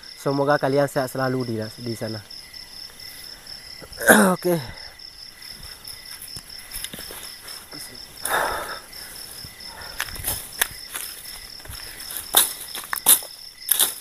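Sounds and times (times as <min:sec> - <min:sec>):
insects chirping: 0:00.0 - 0:14.0
dry leaves rustling: 0:09.9 - 0:14.0
twigs snapping: 0:10.0 - 0:14.0.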